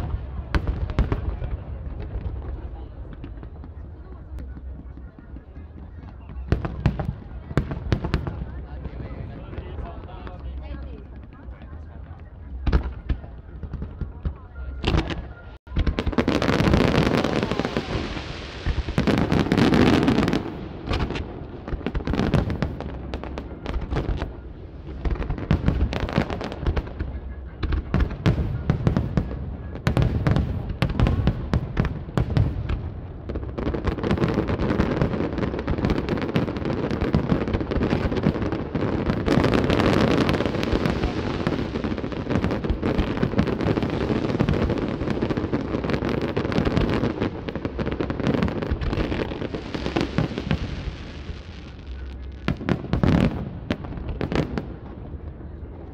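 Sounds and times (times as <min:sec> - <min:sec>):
fireworks bursting: 0:00.0 - 0:55.9.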